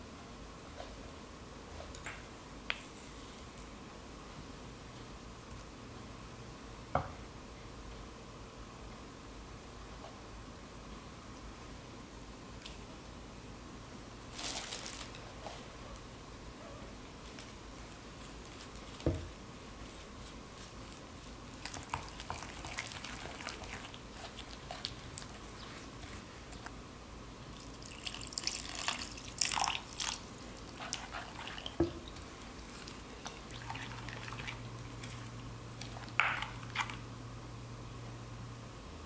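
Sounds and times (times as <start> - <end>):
wooden spoon stirring paste in bowl: 18.2 - 26.8, 29.4 - 37.0
water pouring: 27.6 - 31.8, 32.8 - 34.6.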